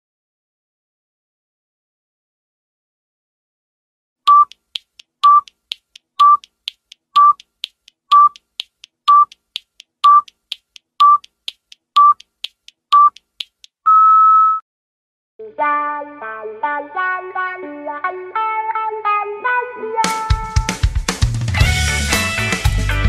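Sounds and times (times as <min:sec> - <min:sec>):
short timer beeps: 0:04.3 - 0:04.6, 0:05.2 - 0:05.6, 0:06.2 - 0:06.5, 0:07.2 - 0:07.5, 0:08.1 - 0:08.4, 0:09.1 - 0:09.4, 0:10.0 - 0:10.4, 0:11.0 - 0:11.3, 0:12.0 - 0:12.3, 0:12.9 - 0:13.3, 0:13.9 - 0:14.6
faint ticking: 0:04.3 - 0:13.8.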